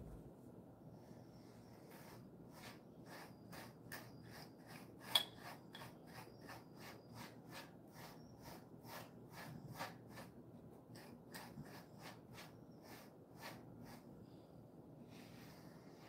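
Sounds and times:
brush rasping through dog fur: 1.9 - 14.2.

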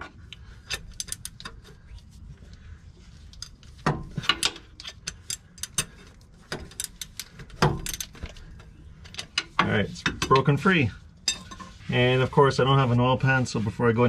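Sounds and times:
ratcheting wrench clicking: 0.3 - 1.8, 4.2 - 8.4.

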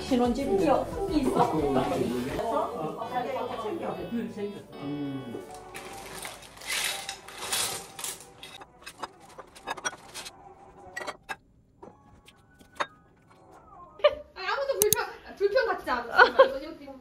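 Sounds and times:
plastic bag rustling: 5.5 - 10.4
dishes and cutlery clinking: 6.7 - 13.4.

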